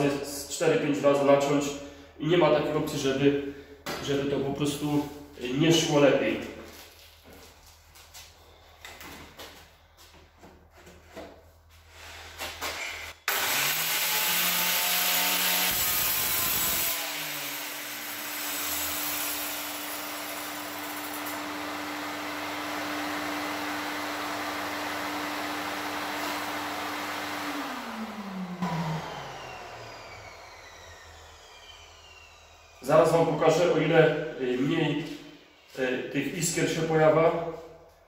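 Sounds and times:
plunge-cut saw cutting stone: 13.2s - 21.9s.

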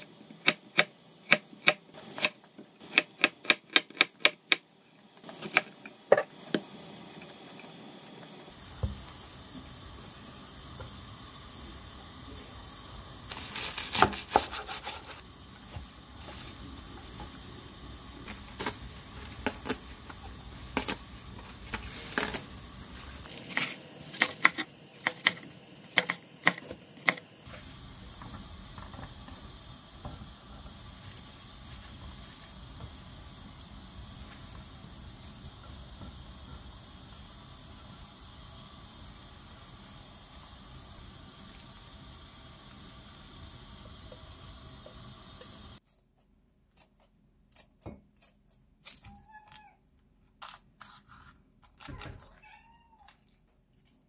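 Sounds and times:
faint steady hiss: 4.6s - 45.8s.

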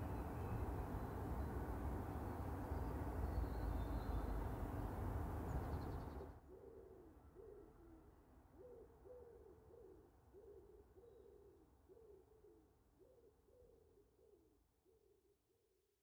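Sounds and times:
outdoor rumble and hiss: 0.0s - 6.4s.

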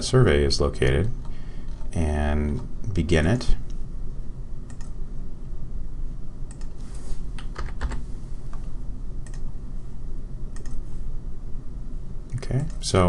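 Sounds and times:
low background hum: 0.0s - 13.0s
keyboard and mouse clicking: 4.7s - 5.0s, 6.5s - 6.8s, 9.2s - 9.5s, 10.6s - 10.8s.

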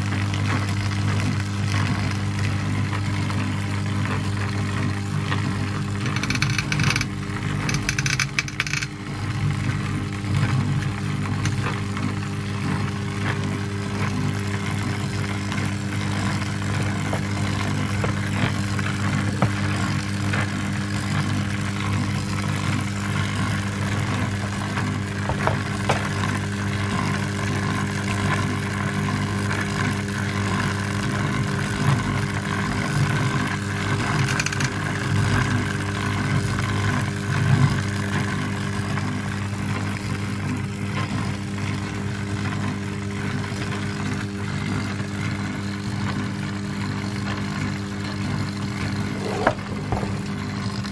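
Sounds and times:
electric motor humming: 0.0s - 50.9s
belt drive whine: 5.2s - 27.4s, 33.9s - 35.4s.

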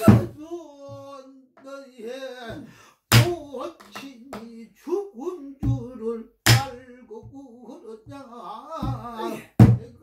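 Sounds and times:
barrel drum thumps: 8.8s - 10.0s.

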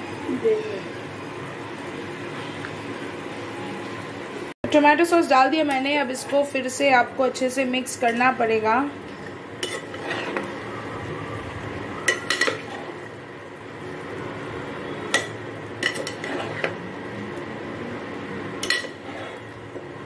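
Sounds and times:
spatula stirring thick curry: 9.6s - 10.8s, 15.8s - 16.8s.

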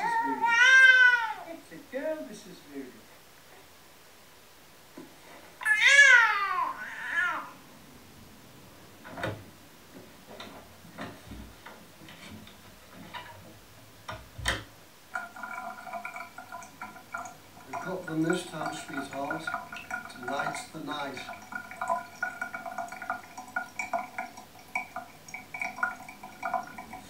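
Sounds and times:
high-pitched drawn-out cry: 5.6s - 7.6s.

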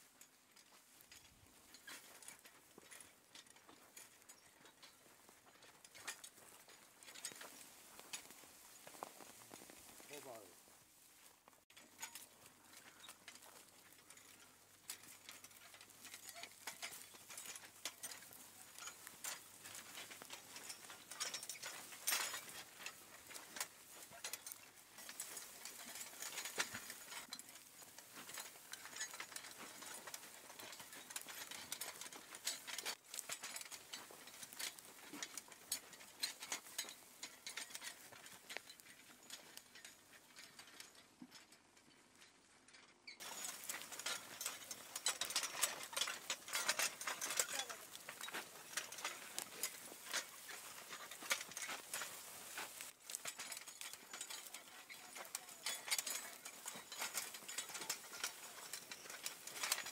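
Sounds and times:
plow scraping through soil: 0.2s - 41.2s, 43.0s - 59.9s
chains clinking: 11.7s - 41.0s, 43.1s - 59.9s.

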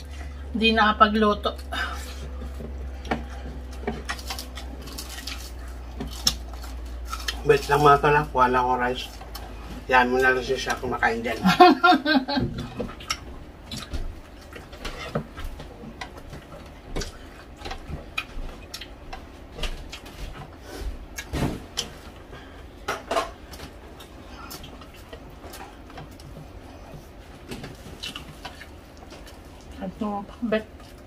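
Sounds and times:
chewing and mouth clicks: 1.6s - 7.8s, 12.6s - 21.9s, 23.5s - 29.8s, 30.7s - 31.0s.

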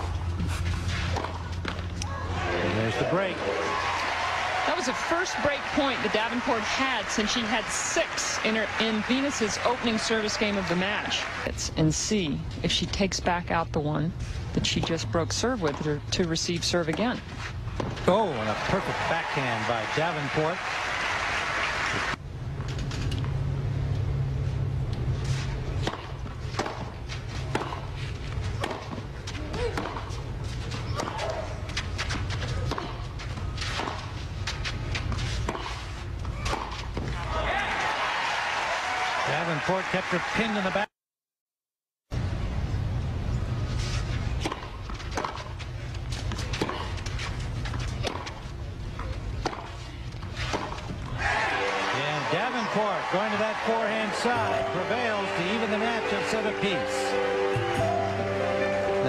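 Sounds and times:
players' footsteps: 0.0s - 11.5s, 25.0s - 38.2s, 43.7s - 58.1s
low background hum: 0.0s - 39.6s, 42.1s - 56.4s
racket hitting tennis ball: 0.4s - 2.0s, 15.6s - 16.0s, 25.2s - 37.2s, 43.9s - 56.6s
tennis ball bouncing on clay: 14.6s - 16.0s, 25.8s - 27.9s, 28.6s - 30.2s, 44.4s - 48.4s, 49.4s - 49.8s
ball bounces: 28.6s - 30.2s, 47.7s - 48.4s, 49.0s - 49.8s
low hum of crowd: 45.7s - 59.0s.

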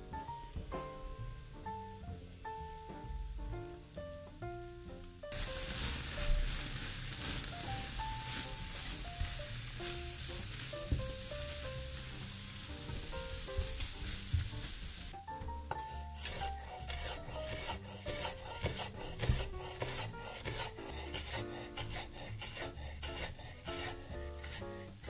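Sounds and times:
soft background music: 0.0s - 25.0s
food sizzling in a pan: 5.3s - 25.0s
knife chopping on wooden board: 15.4s - 24.6s.

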